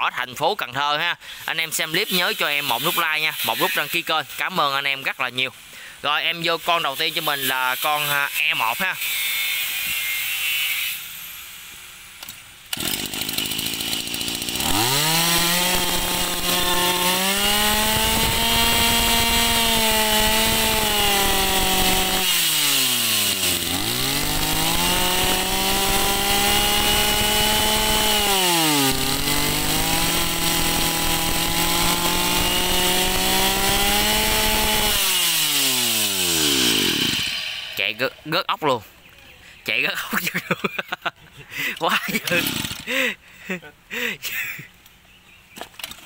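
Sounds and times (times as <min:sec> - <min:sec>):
two-stroke brush cutter engine revving: 0:12.7 - 0:38.3, 0:42.0 - 0:43.1.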